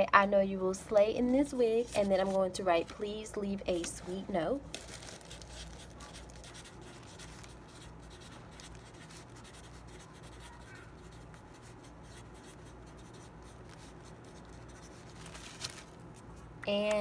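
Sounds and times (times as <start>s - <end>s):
marker scratching on paper: 5.5s - 15.2s.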